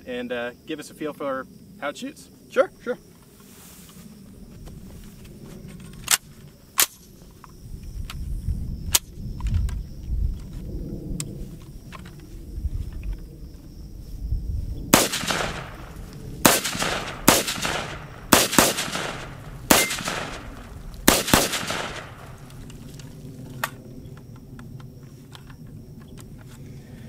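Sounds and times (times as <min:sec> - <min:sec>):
rifle shots: 0:14.9 - 0:22.8.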